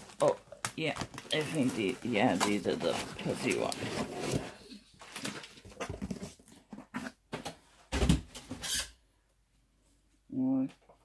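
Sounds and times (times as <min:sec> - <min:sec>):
plastic wrap crackling: 0:00.0 - 0:03.9
cans rustling and knocking: 0:00.0 - 0:07.4.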